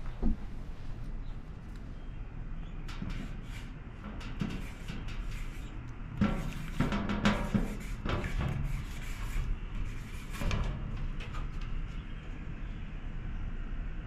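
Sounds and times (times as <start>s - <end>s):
marker squeaking on metal: 2.7s - 12.2s.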